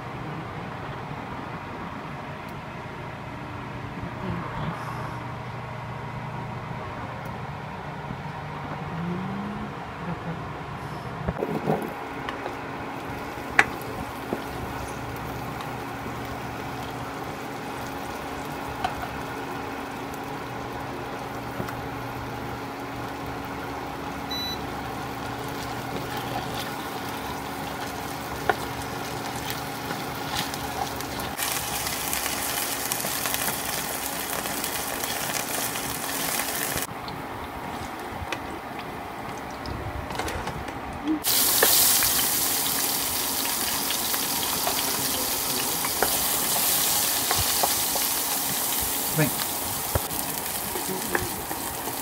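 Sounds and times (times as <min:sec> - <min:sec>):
induction cooktop hum: 0:00.0 - 0:52.0
potatoes sizzling in oil: 0:13.0 - 0:36.9, 0:41.2 - 0:52.0.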